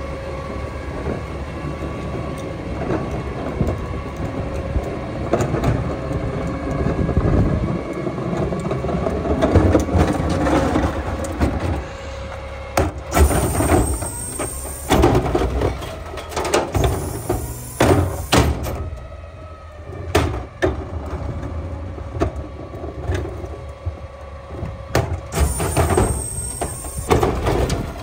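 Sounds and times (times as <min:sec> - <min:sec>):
truck engine running: 0:00.0 - 0:28.0
hydraulic hiss: 0:13.1 - 0:15.3, 0:16.8 - 0:18.8, 0:25.4 - 0:27.4.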